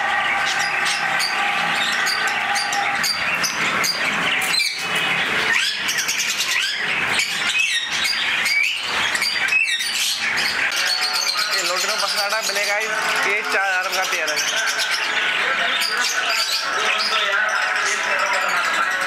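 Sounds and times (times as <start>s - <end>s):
loud rising bird calls: 0.0s - 13.2s
birds chirping: 0.0s - 19.0s.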